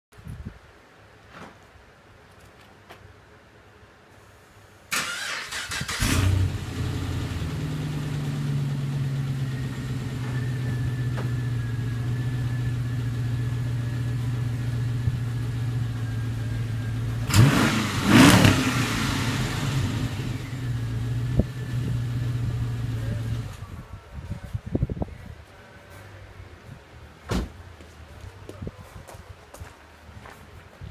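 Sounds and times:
car engine starting and idling: 4.9s - 23.7s
engine revving: 5.0s - 11.2s, 17.1s - 23.6s.

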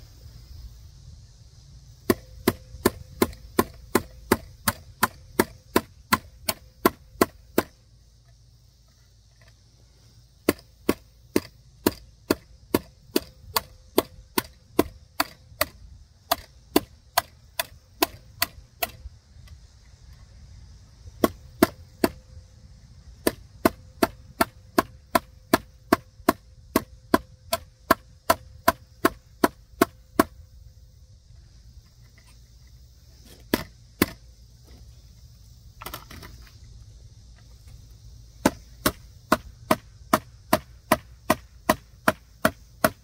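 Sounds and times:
hammering nail into wood: 2.1s - 7.7s, 10.4s - 19.0s, 21.2s - 22.2s, 23.2s - 30.4s, 38.4s - 43.0s.

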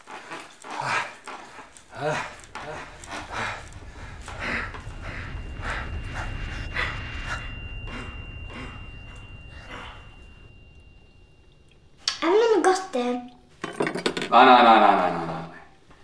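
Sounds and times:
person breathing heavily: 0.6s - 10.3s
low rumble: 0.8s - 13.6s
thin high tone: 1.6s - 13.6s.

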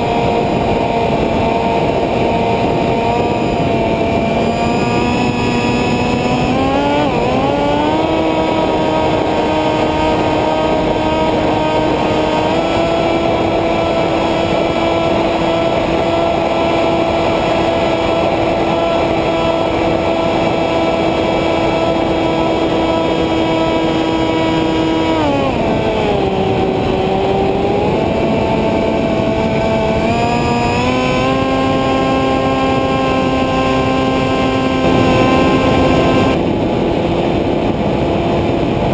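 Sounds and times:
model airplane motor and propeller: 0.0s - 38.9s
wind rushing: 32.2s - 38.8s.

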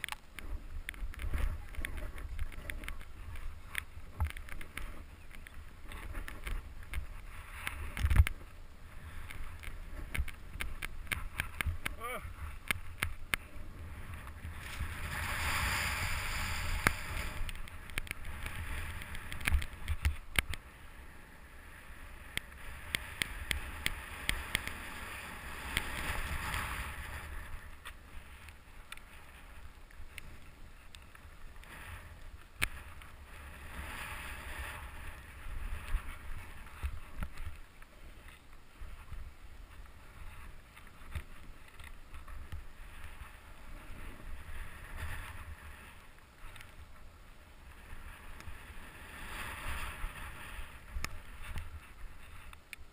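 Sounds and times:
wind on microphone: 0.0s - 52.9s
snowboard swishing through snow: 13.5s - 17.5s.

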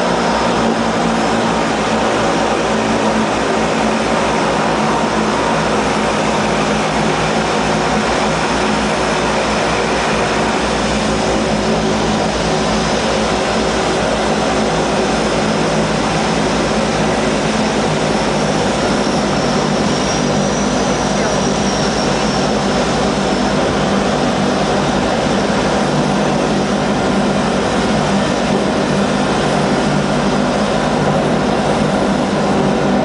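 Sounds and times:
turboprop engines from cabin: 0.0s - 33.0s.

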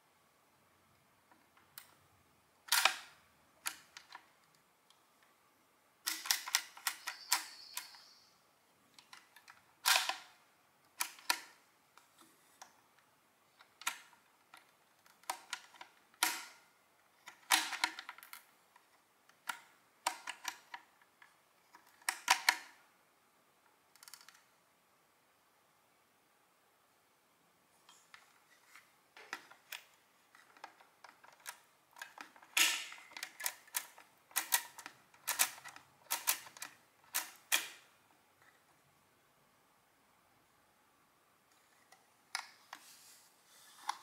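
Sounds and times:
adding machine clicking: 30.6s - 37.8s.

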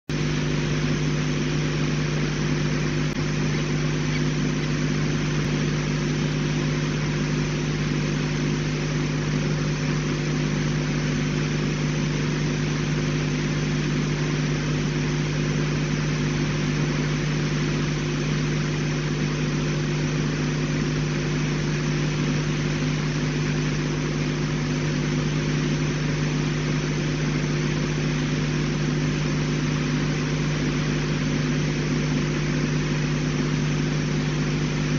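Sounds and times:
low tonal hum: 0.1s - 18.3s.

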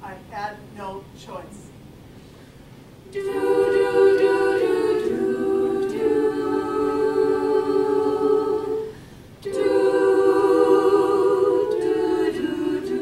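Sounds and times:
women's choir singing: 3.1s - 13.0s.

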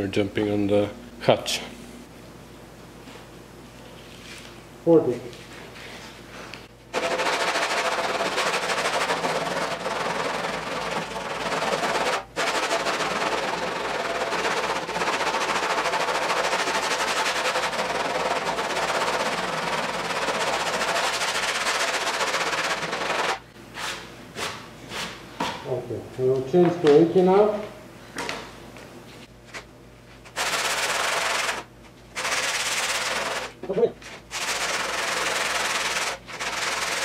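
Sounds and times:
sandpaper scraping back and forth: 7.0s - 24.0s, 30.3s - 37.0s.

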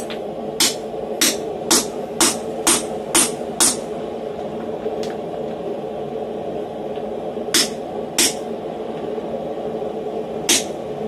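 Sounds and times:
hammer striking hot steel: 0.0s - 3.8s, 7.5s - 8.4s, 10.5s - 10.8s
steady background hum: 0.0s - 11.0s.

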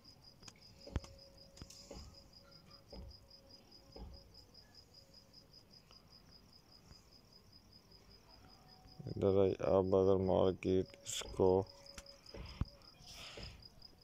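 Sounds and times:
cricket chirping faintly: 0.0s - 14.0s.

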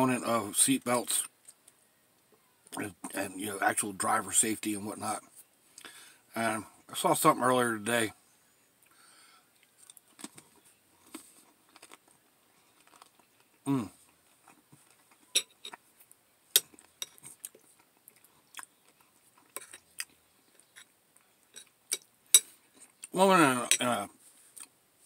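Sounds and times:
quiet chewing: 8.8s - 23.2s
person humming: 13.7s - 14.0s.

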